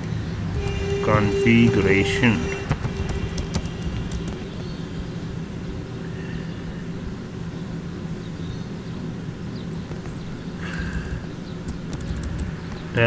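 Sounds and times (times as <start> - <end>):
low mechanical hum: 0.0 - 13.0
faint clicks: 9.9 - 12.9.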